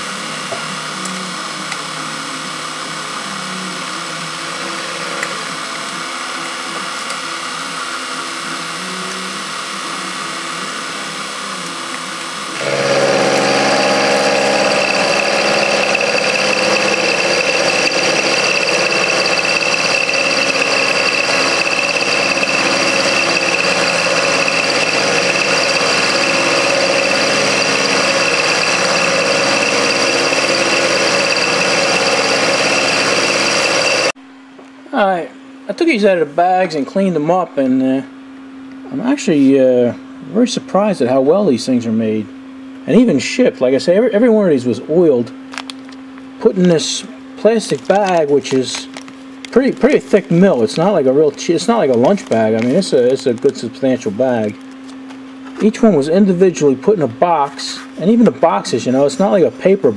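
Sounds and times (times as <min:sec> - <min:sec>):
high steady whine: 0:11.9 - 0:34.2
milling machine cutting metal: 0:12.5 - 0:34.2.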